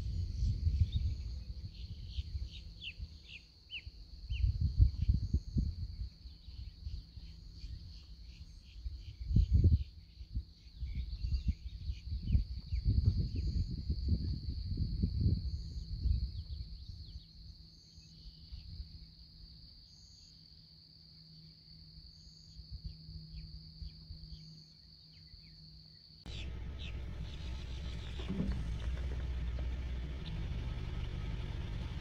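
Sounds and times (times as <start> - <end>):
wind rumbling on microphone: 0.0 - 17.3, 26.3 - 32.0.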